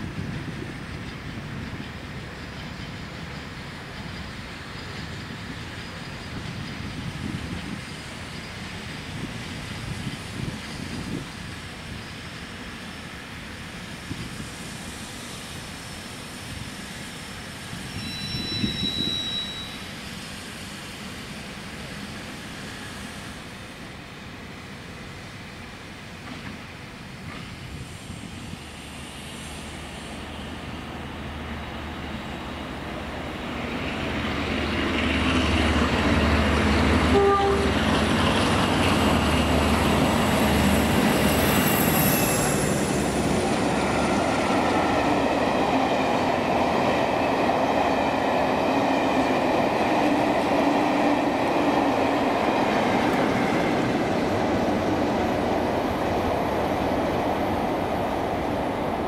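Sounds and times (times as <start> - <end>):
steam locomotive working: 0.0 - 59.0
train wheels rumbling on rails: 0.0 - 59.0
train horn toot: 17.9 - 19.9, 37.0 - 37.9.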